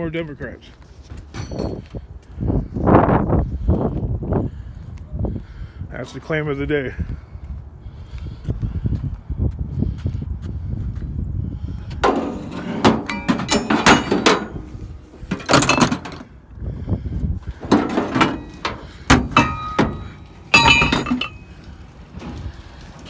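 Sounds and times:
metal tools clanking: 1.3s - 1.9s, 12.0s - 16.3s, 17.6s - 22.4s.

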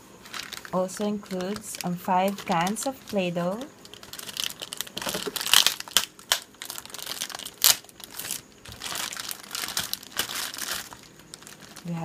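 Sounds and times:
plastic wrapping crinkling: 0.2s - 12.0s.

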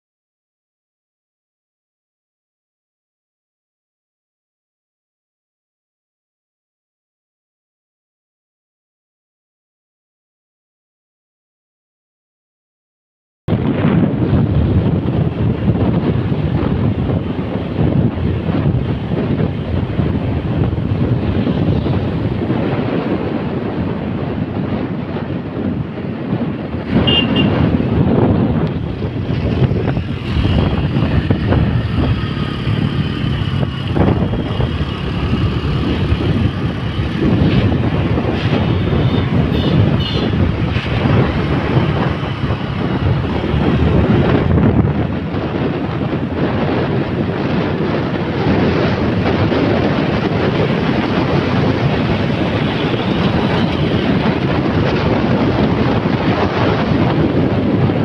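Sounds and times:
wind buffeting microphone: 13.5s - 58.0s
motorcycle running: 13.6s - 58.0s.

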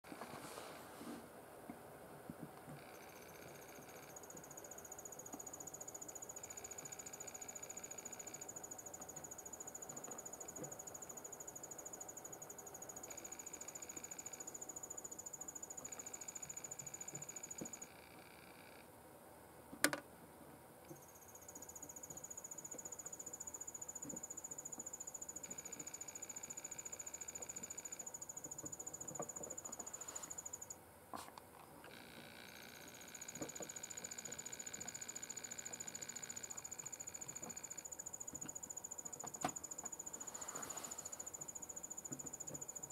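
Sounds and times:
high-pitched insect trill: 2.8s - 18.8s, 21.0s - 30.8s, 31.9s - 42.9s.

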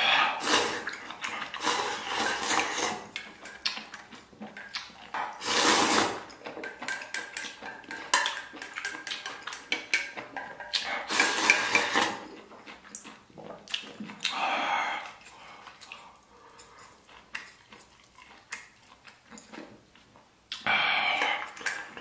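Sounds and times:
slurping noodles: 0.0s - 3.2s, 5.3s - 6.3s, 10.8s - 12.3s
chopsticks scraping metal bowl: 0.4s - 3.6s, 10.8s - 12.2s.

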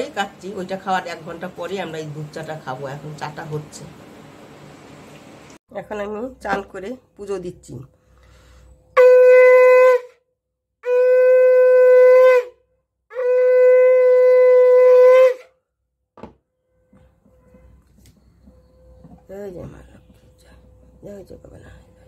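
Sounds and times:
conch shell blasts: 8.9s - 10.2s, 10.8s - 15.5s.

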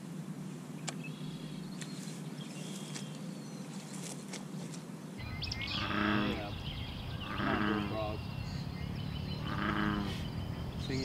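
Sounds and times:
faint bird chirps: 5.2s - 11.0s.

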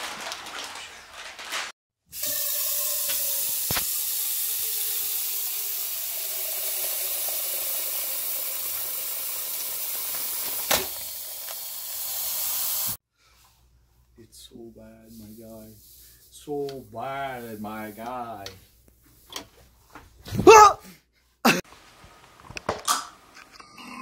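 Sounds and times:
faucet water filling a saucepan: 2.1s - 13.0s.

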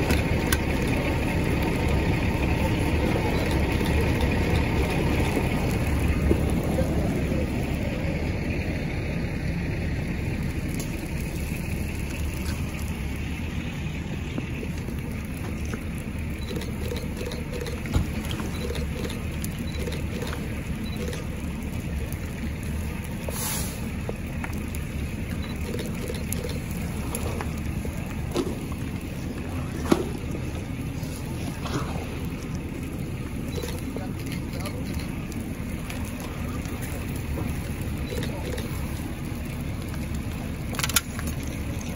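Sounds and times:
fire crackling and popping: 0.0s - 41.9s
steady low rumble: 0.0s - 41.9s.

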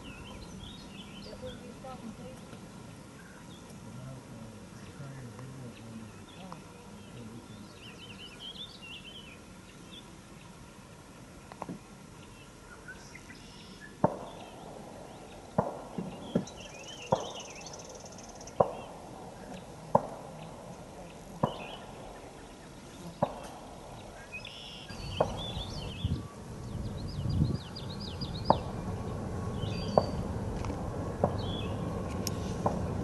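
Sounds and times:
birds chirping: 0.0s - 33.0s
diesel locomotive rumble: 25.0s - 33.0s.

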